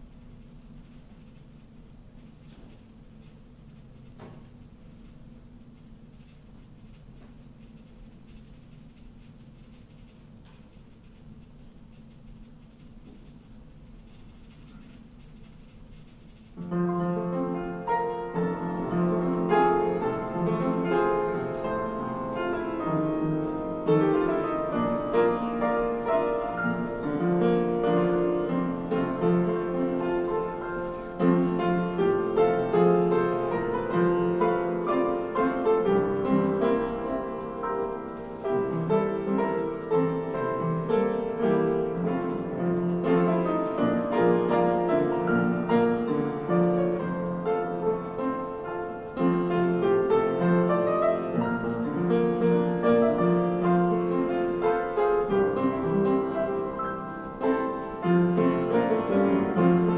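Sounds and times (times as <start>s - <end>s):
piano music: 16.6s - 59.9s.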